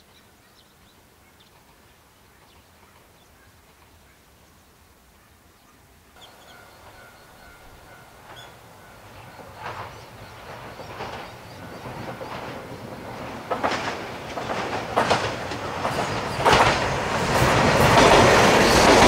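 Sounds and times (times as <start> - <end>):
background hiss: 0.0 - 19.0
bird chirps: 5.6 - 13.2.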